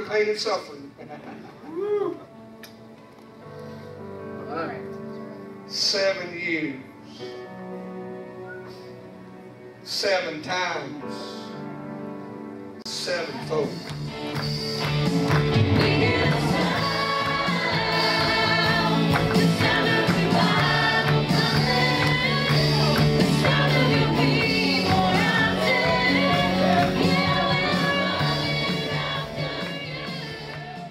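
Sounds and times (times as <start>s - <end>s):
gospel singing with backing band: 14.6s - 30.9s.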